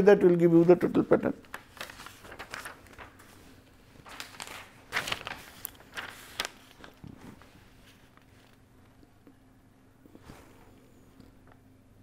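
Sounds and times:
paper rustling: 0.0 - 9.1
faint steady hum: 0.0 - 12.0.

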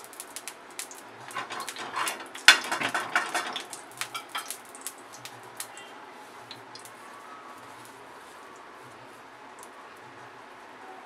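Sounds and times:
loud sharp clatter: 0.8 - 4.8
metal spoon scraping on griddle: 1.2 - 4.8.

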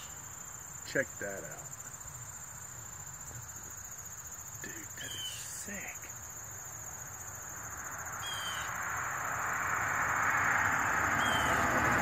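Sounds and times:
insects trilling: 0.0 - 12.0
vehicle approaching on road: 7.4 - 12.0.

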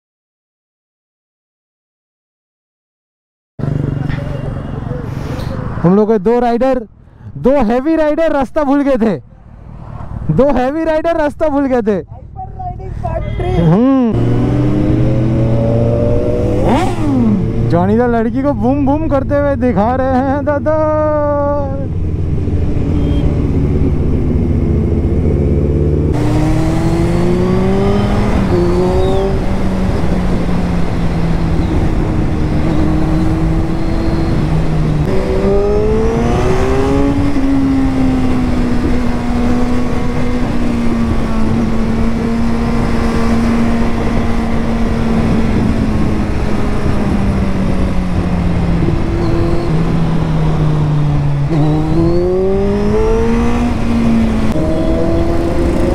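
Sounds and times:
motorcycle engine revving: 3.6 - 5.8, 13.4 - 55.9
wind noise: 20.8 - 55.9.

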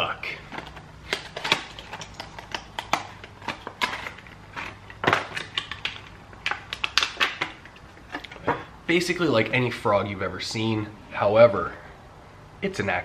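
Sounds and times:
packaging crinkling: 0.5 - 8.4.

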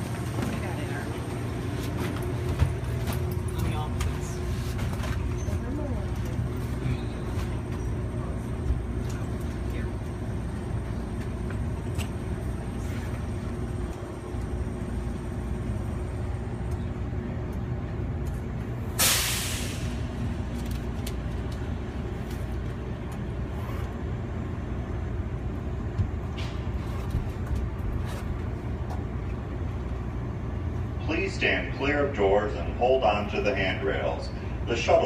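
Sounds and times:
tram humming: 0.0 - 35.0
air hiss: 19.0 - 20.0.

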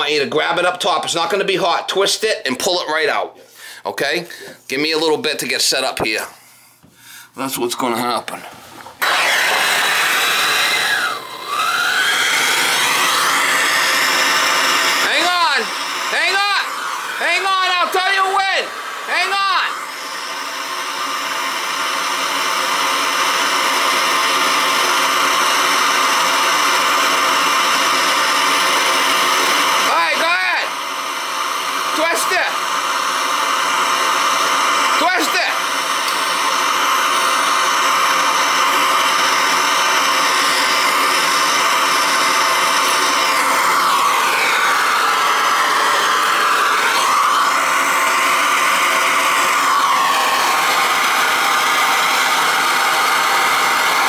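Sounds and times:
gas torch hissing: 9.0 - 22.4.

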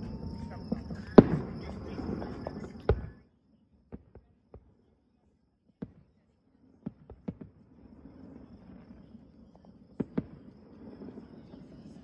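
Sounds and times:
faint firework pops and cracks: 0.0 - 3.2, 3.8 - 5.0, 5.6 - 12.0
firework bang: 0.0 - 3.2, 10.0 - 12.0.

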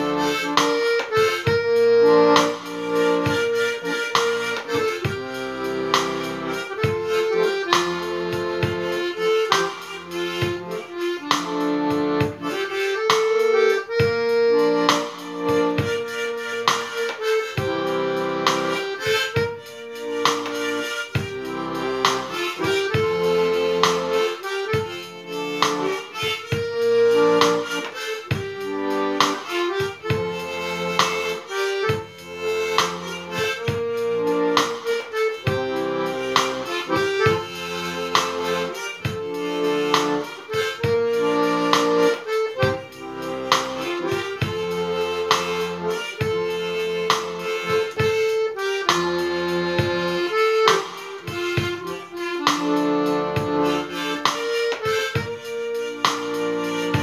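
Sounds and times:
accordion bass and chords: 0.0 - 57.0
harmonica melody: 0.0 - 57.0.

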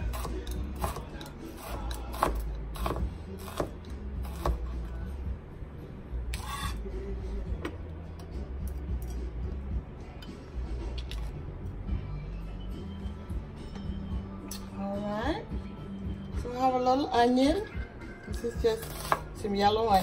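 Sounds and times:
knife chopping on cutting mat: 1.6 - 4.7
knife blade scraping mat: 6.3 - 6.9.

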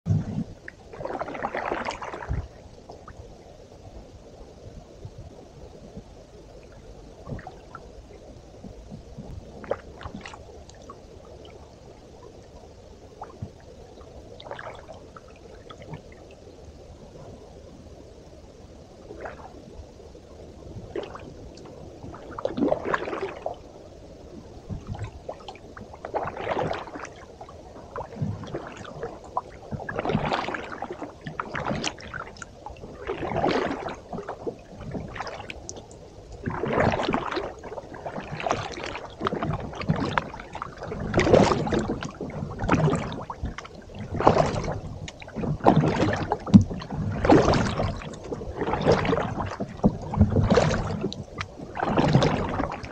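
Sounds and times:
paddle splashing in water: 0.1 - 2.6, 22.1 - 23.6, 24.8 - 27.2, 27.9 - 35.8, 36.4 - 52.9.

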